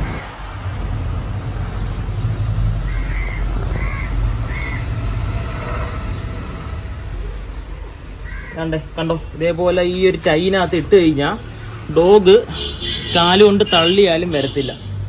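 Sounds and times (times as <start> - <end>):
crow cawing: 2.8 - 5.0, 8.2 - 8.7.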